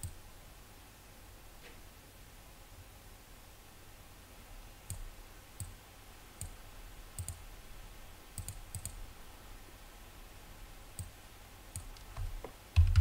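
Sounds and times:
faint low hum: 0:00.0 - 0:13.0
mouse buttons clicking: 0:07.2 - 0:07.4.

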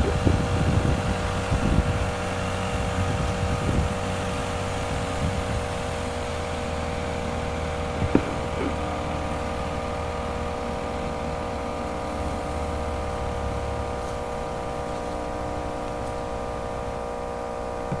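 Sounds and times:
low engine hum: 0:00.0 - 0:18.0
mechanical whine: 0:00.0 - 0:18.0
sharp knock: 0:08.0 - 0:08.8.

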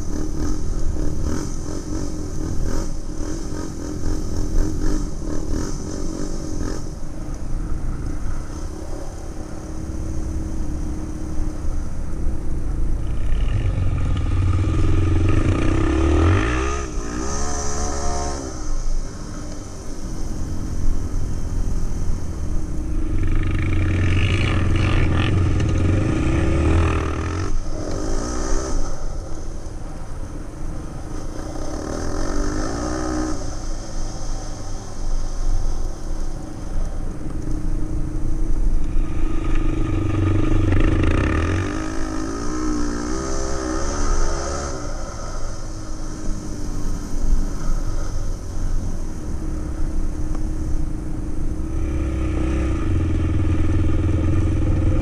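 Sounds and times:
quad engine revving: 0:13.4 - 0:18.8, 0:23.2 - 0:29.0, 0:31.3 - 0:33.6, 0:38.9 - 0:46.6.

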